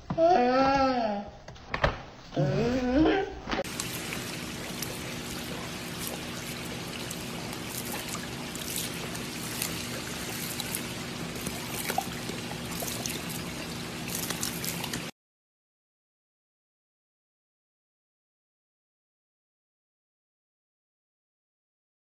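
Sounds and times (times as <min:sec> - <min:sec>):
steady low hum: 0:03.6 - 0:15.1
water trickling and splashing: 0:03.6 - 0:15.1.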